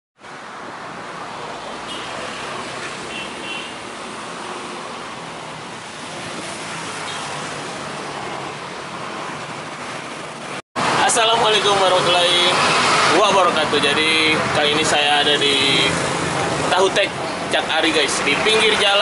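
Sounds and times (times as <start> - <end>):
road traffic noise: 0.2 - 19.0.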